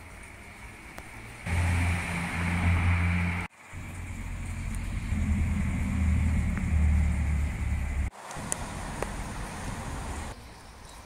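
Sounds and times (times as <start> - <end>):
low motor drone: 1.5 - 9.4.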